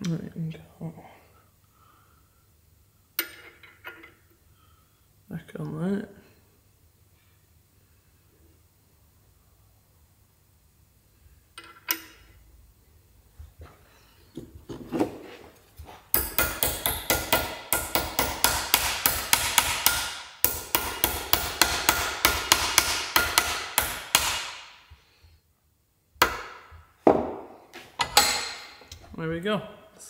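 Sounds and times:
small hammer tapping on metal: 16.2s - 24.6s.

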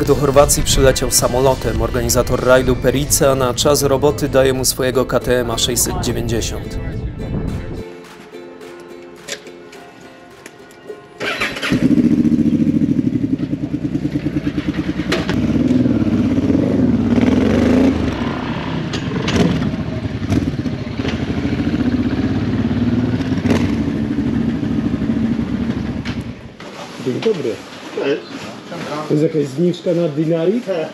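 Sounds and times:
motorcycle engine starting and revving: 11.2s - 26.7s.

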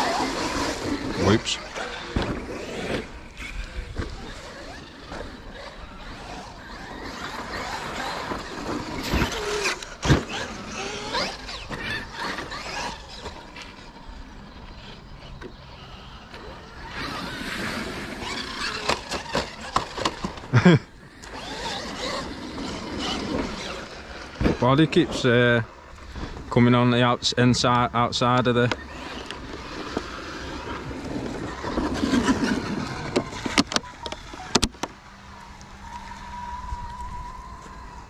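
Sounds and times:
knocks from landings: 0.0s - 13.6s
rc truck motor whining: 0.0s - 38.0s.

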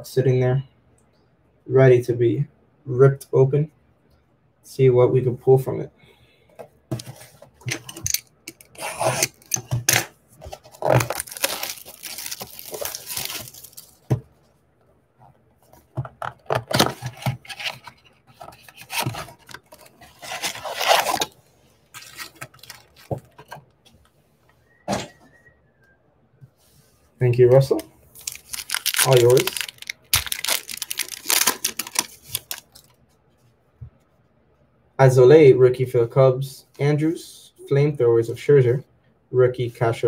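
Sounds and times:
cardboard box tearing: 10.7s - 13.8s, 20.1s - 21.3s, 28.2s - 32.6s.

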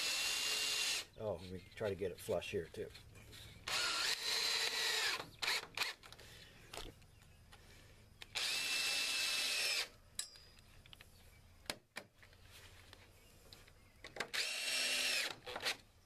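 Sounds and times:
cordless drill driving screws: 0.0s - 1.1s, 3.7s - 6.1s, 8.3s - 9.9s, 14.2s - 15.8s.

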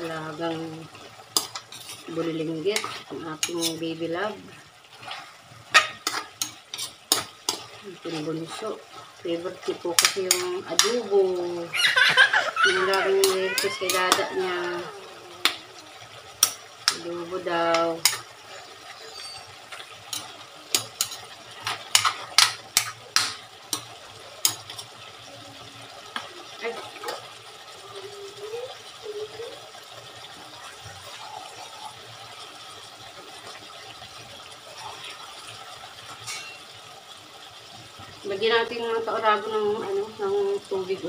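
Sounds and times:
pan hissing as meat simmers: 0.0s - 41.0s
spatula scraping metal wok: 1.3s - 4.0s, 4.9s - 9.0s, 12.7s - 14.8s, 18.0s - 24.9s, 36.2s - 36.7s.

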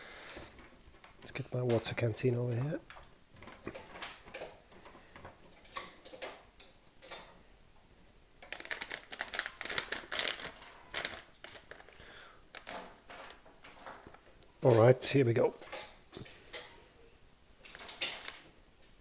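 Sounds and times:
foil pouch crinkling: 8.4s - 14.2s.

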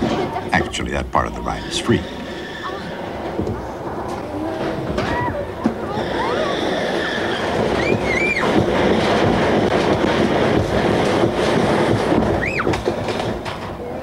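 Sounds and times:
wind rush and rumble of ride: 0.0s - 14.0s
riders screaming: 5.0s - 8.6s, 12.4s - 12.8s.

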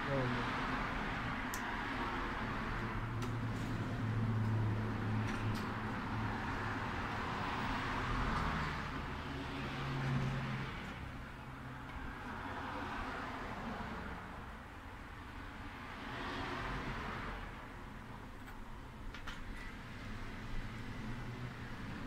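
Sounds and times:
vehicle engine hum: 0.0s - 15.7s.

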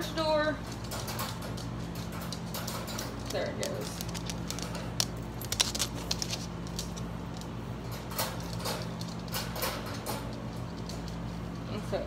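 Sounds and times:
metal crate door rattling: 7.8s - 10.5s.

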